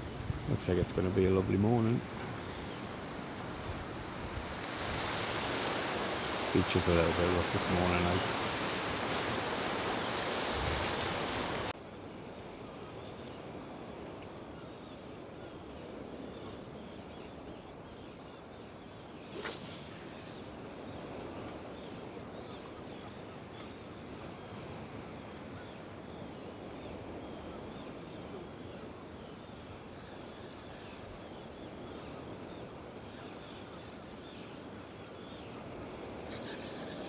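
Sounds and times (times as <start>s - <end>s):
water: 0.0s - 12.0s, 12.8s - 37.0s
wind: 0.0s - 37.0s
faint bird calls: 14.5s - 37.0s
fishing rod whipping: 19.3s - 20.6s
fishing line hissing out: 19.3s - 21.8s.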